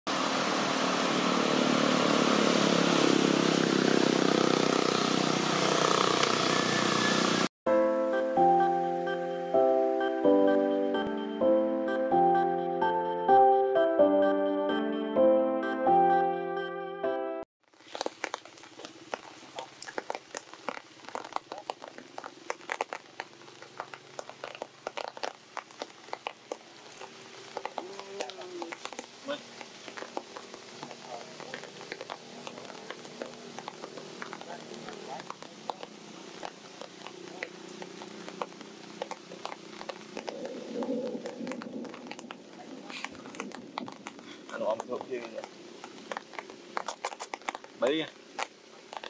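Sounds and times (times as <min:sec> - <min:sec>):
engine running with fast pulsing: 0:00.1 - 0:07.5
soft clicks and crackles: 0:17.8 - 0:49.0.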